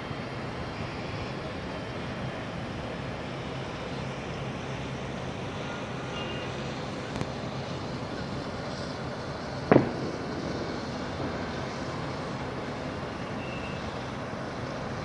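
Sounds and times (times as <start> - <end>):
city traffic hum: 0.0 - 15.0
loud sharp bang: 9.7 - 10.6.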